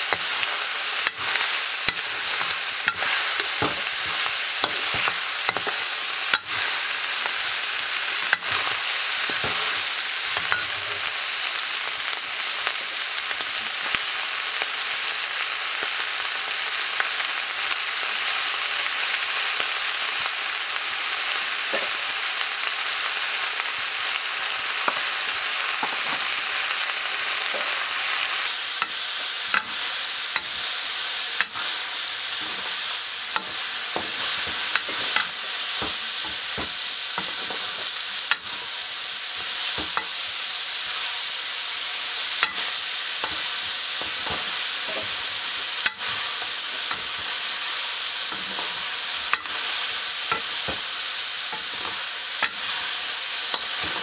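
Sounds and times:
metal ladle scraping wok: 0.0 - 11.1, 28.8 - 30.7, 31.4 - 38.8, 42.4 - 47.5, 48.2 - 50.9, 51.5 - 54.0
vegetables sizzling in a wok: 0.0 - 54.0.

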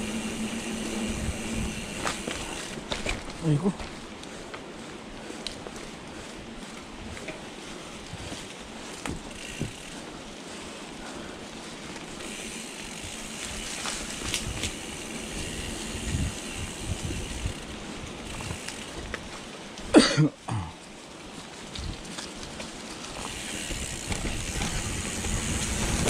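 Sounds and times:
bike jolt: 0.0 - 4.0, 8.2 - 10.0, 12.0 - 19.3, 21.7 - 26.0
bike tyres rumbling on dirt: 0.0 - 20.0, 20.8 - 26.0.

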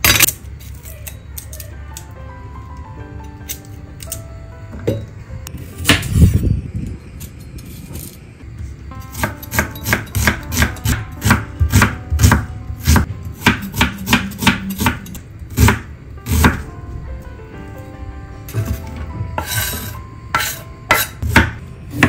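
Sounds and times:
knife chopping on wooden board: 9.1 - 16.6, 20.4 - 22.0.

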